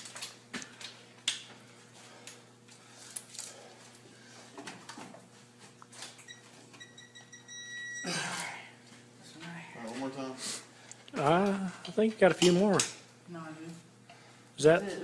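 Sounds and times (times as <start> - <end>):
torque tool beeping: 6.3 - 8.2.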